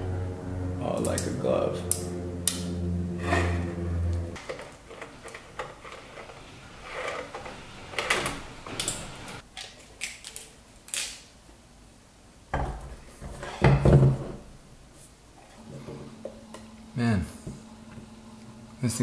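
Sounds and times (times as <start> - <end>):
gear clicks scrapes and clatters: 4.4 - 8.1.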